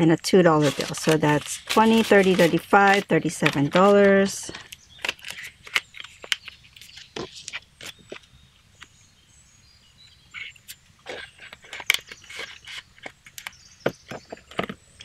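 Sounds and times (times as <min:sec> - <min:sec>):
paper banknotes rustling: 0:00.2 - 0:08.3.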